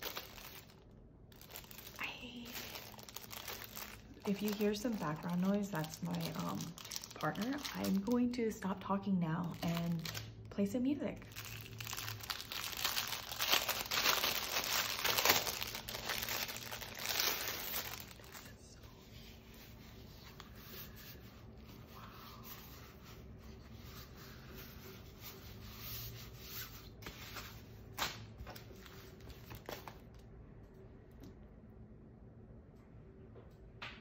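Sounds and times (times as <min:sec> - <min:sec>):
plastic packaging crinkling: 0:00.0 - 0:10.5, 0:11.2 - 0:18.6.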